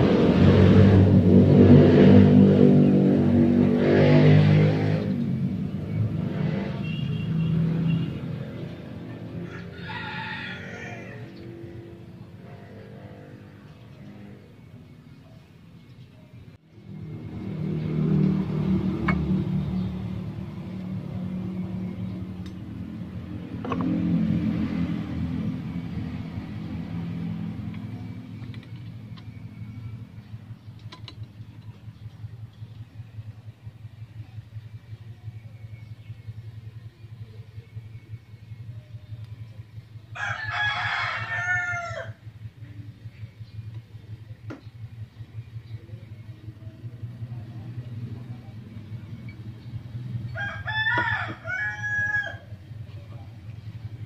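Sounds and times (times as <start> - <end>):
rooster crowing: 9.3 - 11.7, 40.1 - 42.3, 50.2 - 52.6.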